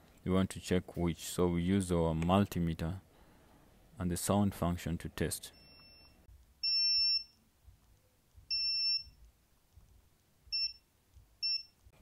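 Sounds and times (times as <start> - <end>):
multimeter continuity beeps: 5.5 - 7.4, 8.5 - 9.2, 10.5 - 11.8.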